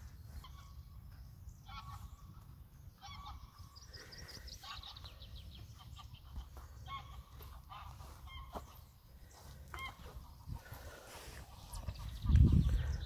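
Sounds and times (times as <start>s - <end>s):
wind rumble on microphone: 0.0s - 3.9s, 9.8s - 13.0s
geese honking: 0.0s - 13.0s.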